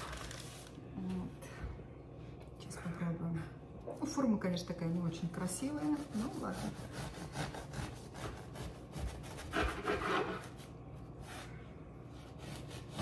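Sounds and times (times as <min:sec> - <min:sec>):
knife sawing through bread: 0:05.6 - 0:11.4, 0:12.2 - 0:13.0.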